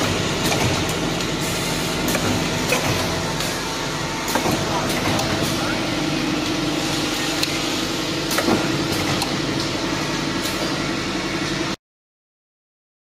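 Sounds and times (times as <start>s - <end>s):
sharp mechanical clicks and knocks: 0.0s - 1.4s, 2.0s - 3.6s, 4.2s - 5.6s, 8.3s - 9.8s
steady mechanical hum of machines: 0.0s - 11.8s.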